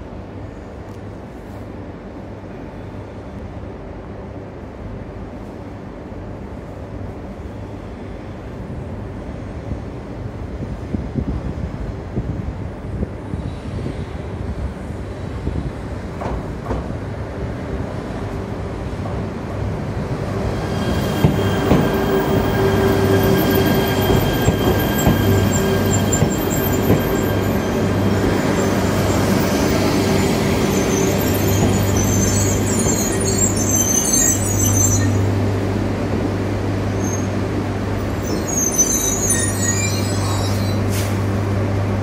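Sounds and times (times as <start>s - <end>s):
train rolling with low hum: 0.0s - 42.0s
high-pitched wheel squealing: 20.6s - 35.3s, 38.1s - 40.8s.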